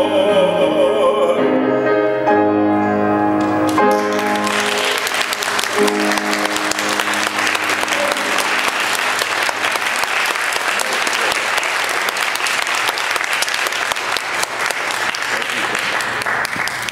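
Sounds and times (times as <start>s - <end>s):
keyboard chord: 0.0s - 10.3s
audience applauding: 3.4s - 16.9s.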